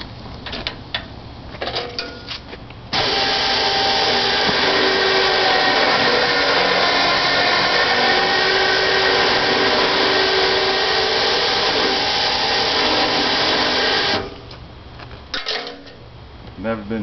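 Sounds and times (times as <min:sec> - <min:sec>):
winch running under load: 0:03.0 - 0:14.4.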